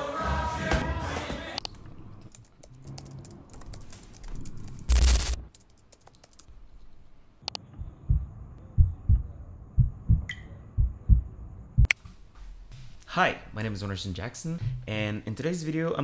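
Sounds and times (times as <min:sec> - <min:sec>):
music with singing: 0:00.0 - 0:01.6
laptop keyboard typing: 0:02.2 - 0:06.5.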